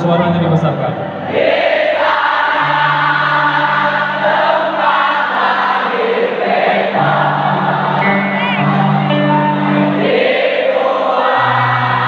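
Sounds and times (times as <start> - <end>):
crowd singing along: 0.2 - 12.0
live band music: 6.6 - 10.4.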